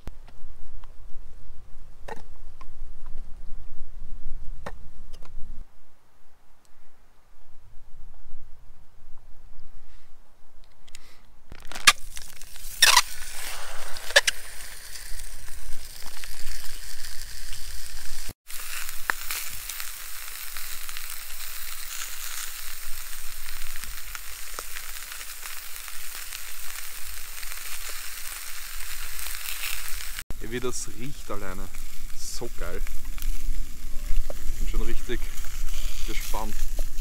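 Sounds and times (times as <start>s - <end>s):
sausage sizzling in pan: 11.6s - 37.0s.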